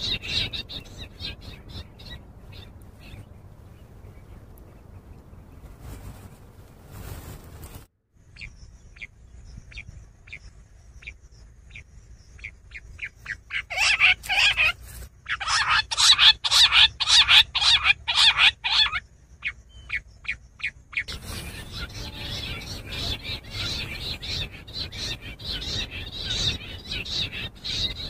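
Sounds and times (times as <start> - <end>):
quail calling: 0.0 - 3.3, 13.0 - 28.0.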